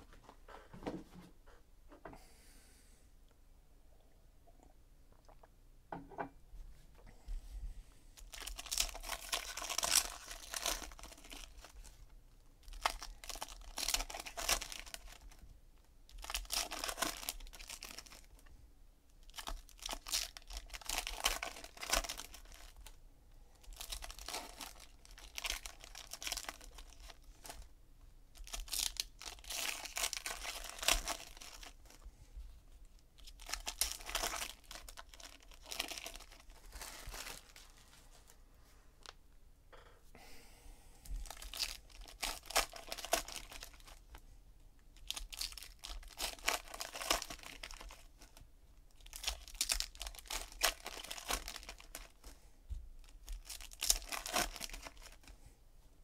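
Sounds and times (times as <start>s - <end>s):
foil packs tearing and crinkling: 8.3s - 12.0s, 12.6s - 15.4s, 16.1s - 18.3s, 19.2s - 22.9s, 23.7s - 27.6s, 28.4s - 32.0s, 33.2s - 37.7s, 41.2s - 44.0s, 45.0s - 48.4s, 49.0s - 52.2s, 53.0s - 55.3s.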